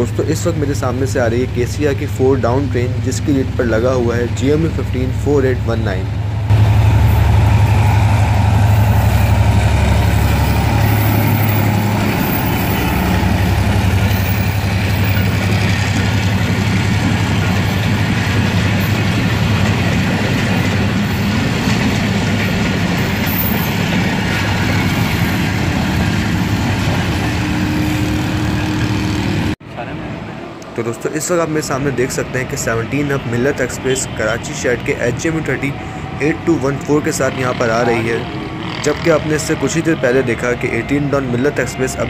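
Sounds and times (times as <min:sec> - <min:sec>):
diesel locomotive engine drone: 0:00.0 - 0:42.0
coach wheels rolling on rails: 0:06.4 - 0:29.6.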